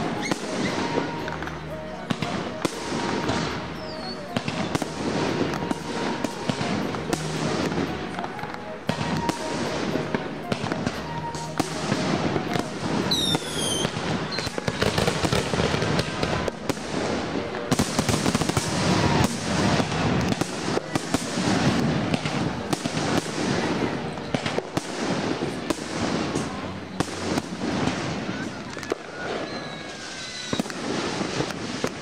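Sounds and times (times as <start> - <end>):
falling firework whistle: 0.0 - 32.0
fireworks bangs and crackle: 0.0 - 32.0.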